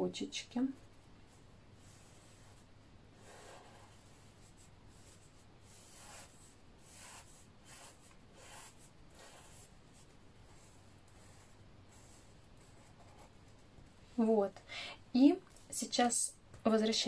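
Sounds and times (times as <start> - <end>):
low steady hum: 0.0 - 17.0
pen scratching on paper: 0.8 - 13.5.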